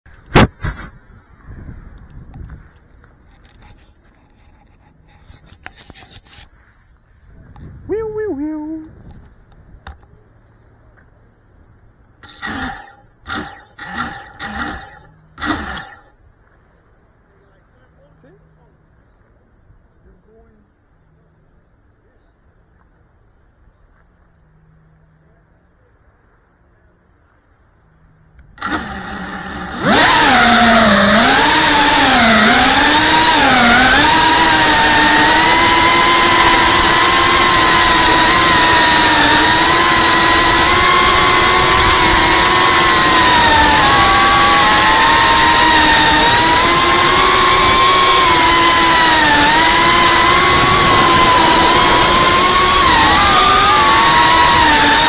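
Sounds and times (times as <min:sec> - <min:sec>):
low background noise: 0:00.1 - 0:29.8
drone motors whining: 0:12.1 - 0:16.2, 0:28.4 - 0:55.0.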